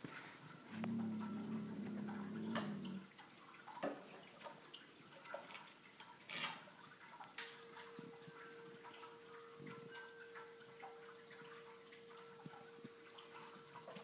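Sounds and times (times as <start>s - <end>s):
low steady tone: 0.1s - 3.3s, 7.0s - 14.0s.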